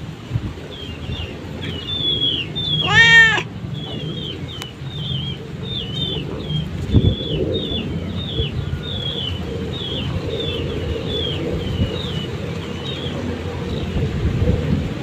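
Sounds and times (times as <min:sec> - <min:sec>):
birds chirping: 0:00.6 - 0:14.2
cat meowing: 0:02.8 - 0:03.5.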